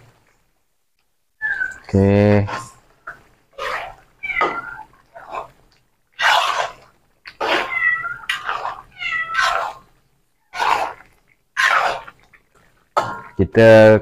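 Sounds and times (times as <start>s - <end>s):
animal crying: 1.4s - 1.9s, 3.6s - 5.5s, 7.4s - 9.9s.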